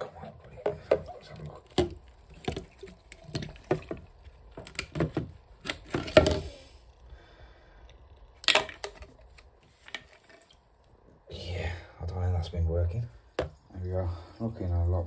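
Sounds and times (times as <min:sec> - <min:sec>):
water splashing: 0:00.0 - 0:04.8.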